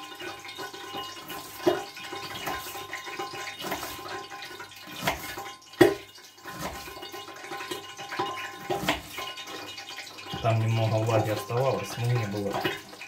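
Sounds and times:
oil spitting sharp pops: 4.9 - 6.9.

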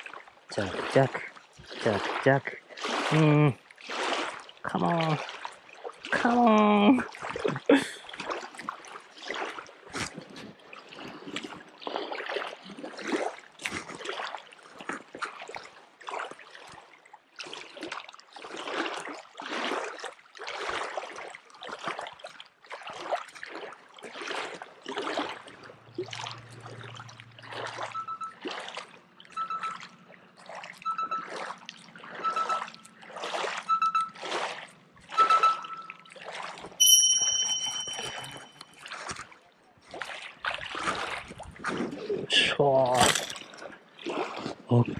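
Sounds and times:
small waves lapping on rocks: 0.0 - 29.6, 38.9 - 44.9.

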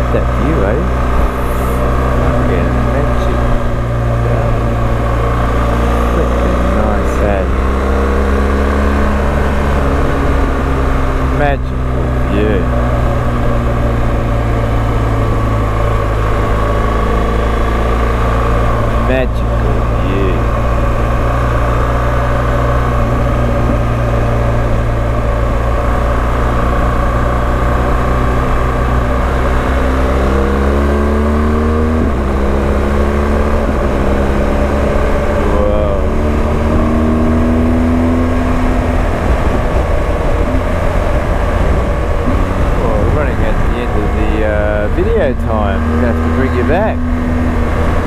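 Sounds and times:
motorcycle engine accelerating: 0.0 - 48.0
wind and road noise: 0.0 - 48.0.

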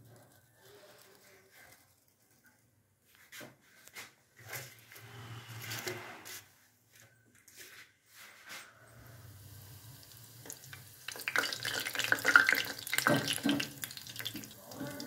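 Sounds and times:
soft rustle: 0.0 - 9.2.

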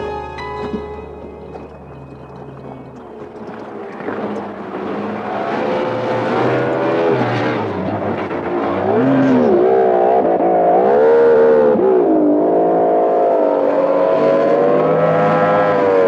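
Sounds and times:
motorboat engine running: 0.0 - 10.8.

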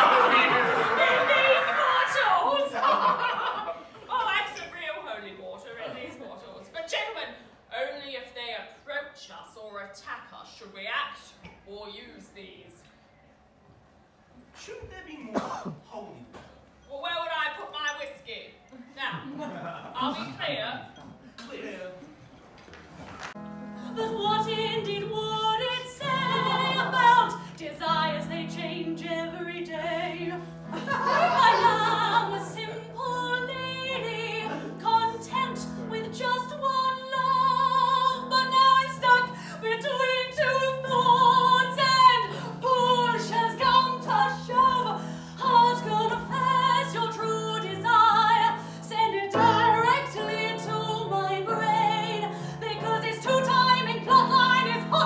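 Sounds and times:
woman singing operatically: 23.9 - 30.4, 31.2 - 55.0.

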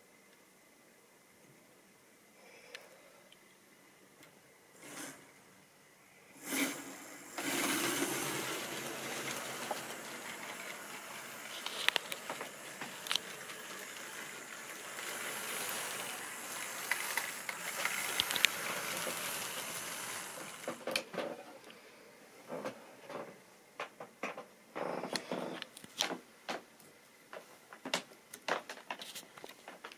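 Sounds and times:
model train whirring rumble: 6.4 - 21.0.

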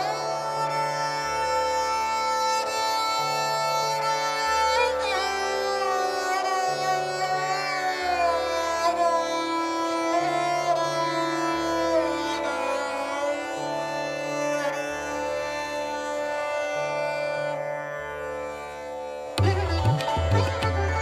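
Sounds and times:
instrumental background music: 19.4 - 21.0.

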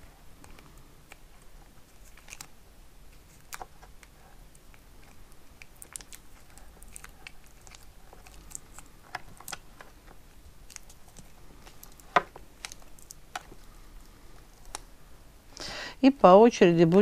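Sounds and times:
wire branches clicking and crackling: 3.1 - 14.9.

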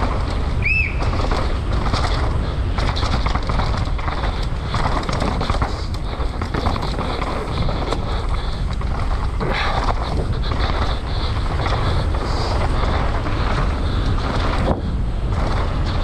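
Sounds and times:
bike clattering over bumps: 0.0 - 16.0
tyres rumbling on dirt: 0.0 - 16.0
wind rushing over microphone: 0.0 - 16.0.

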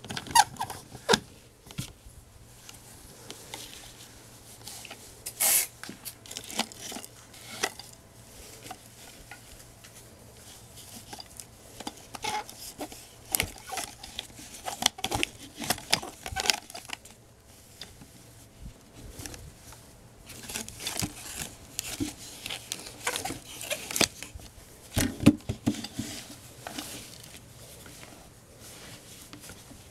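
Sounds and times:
cloth and lace rustling: 25.8 - 29.9.

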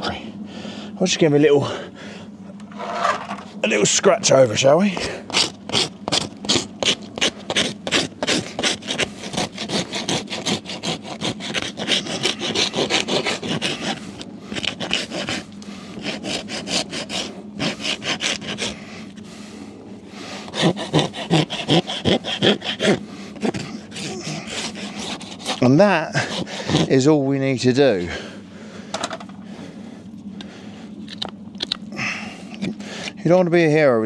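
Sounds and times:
hoof rasp scraping hoof: 2.7 - 3.5, 4.9 - 19.2, 20.5 - 27.1.

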